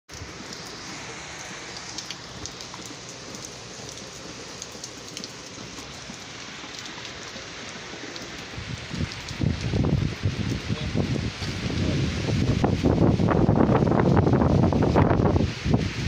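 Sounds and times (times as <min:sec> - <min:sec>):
raindrops ticking: 0:00.1 - 0:11.8
steady rain hiss: 0:00.1 - 0:16.0.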